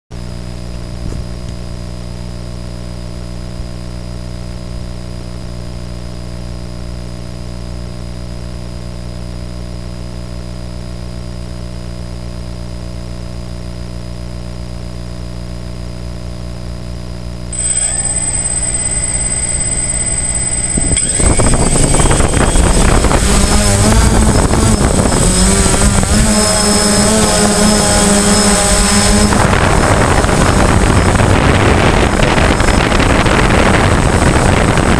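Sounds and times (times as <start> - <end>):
drone propellers whining: 17.6 - 34.8
drone motors humming: 17.6 - 34.9.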